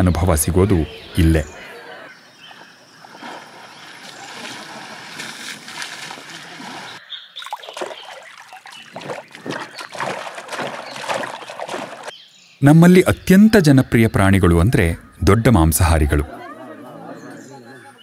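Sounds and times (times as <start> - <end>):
water splashing and sloshing: 2.5 - 12.2.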